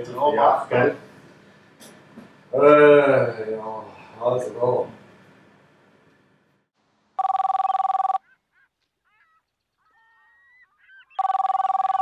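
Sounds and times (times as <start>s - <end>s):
phone ringing: 7.2s - 8.3s, 11.0s - 12.0s
faint birds chirping: 8.2s - 12.0s.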